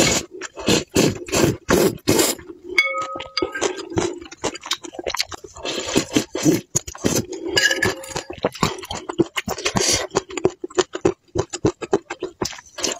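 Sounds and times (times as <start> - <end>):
slurping noodles: 0.0 - 2.8, 3.6 - 10.6, 12.5 - 12.9
wet chewing smacks: 7.9 - 12.9.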